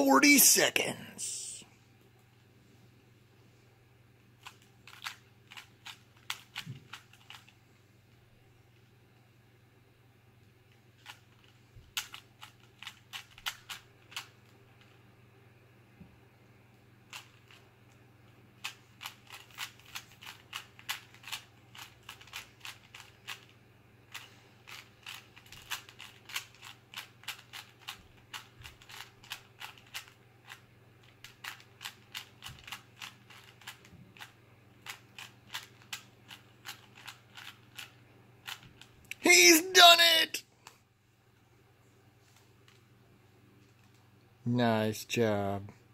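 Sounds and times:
puzzle cube clicking: 4.4 - 7.5, 11.0 - 14.3, 24.1 - 30.6, 31.2 - 39.3.

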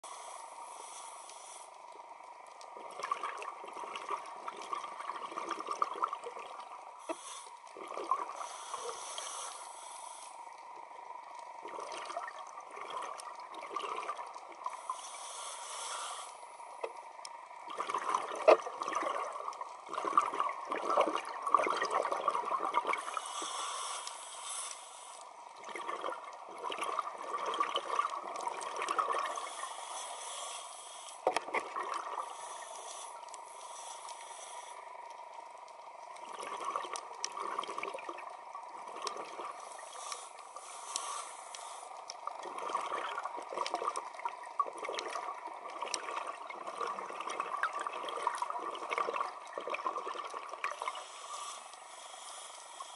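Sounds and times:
regulator hissing inhalations: 0.0 - 1.8, 7.0 - 7.7, 8.3 - 10.5, 14.7 - 16.7, 23.0 - 25.4, 29.3 - 31.3, 32.2 - 34.9, 39.6 - 42.1, 50.7 - 52.9
exhaled bubbles: 2.6 - 8.8, 11.3 - 14.8, 17.5 - 23.2, 25.5 - 29.6, 31.2 - 32.5, 36.0 - 39.9, 42.1 - 51.4.

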